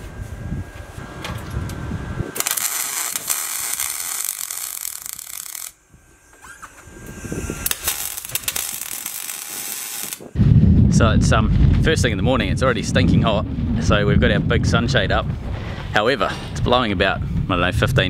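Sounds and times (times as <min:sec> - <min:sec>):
wind rumble on microphone: 0:00.0 - 0:02.4, 0:05.0 - 0:18.0
welding arc crackling: 0:02.2 - 0:10.4.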